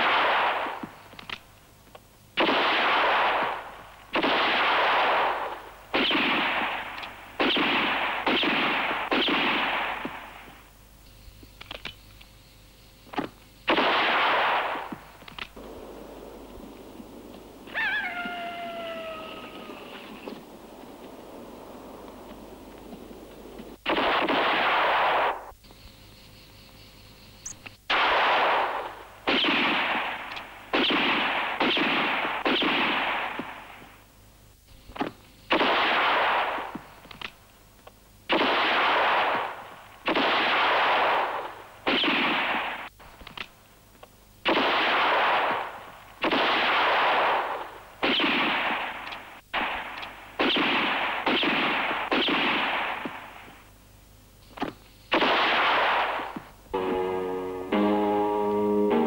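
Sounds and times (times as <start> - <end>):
gunshots with echo: 0.0 - 0.9, 2.4 - 10.5, 13.7 - 15.0, 23.0 - 25.5, 27.9 - 33.7, 35.5 - 36.7, 38.3 - 42.9, 44.5 - 49.0, 49.6 - 53.4, 55.1 - 56.9.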